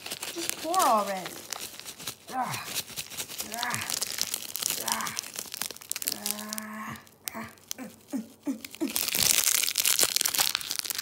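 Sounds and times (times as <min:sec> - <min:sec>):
plastic packet crinkling: 0:00.0 - 0:11.0
person humming: 0:03.4 - 0:04.0, 0:04.7 - 0:05.3, 0:06.0 - 0:09.2.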